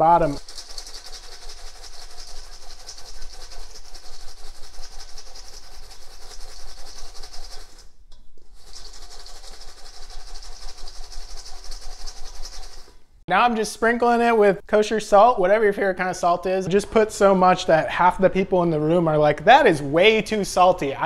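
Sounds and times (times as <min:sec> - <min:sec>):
popcorn rattling in metal bowl: 0:00.0 - 0:13.0.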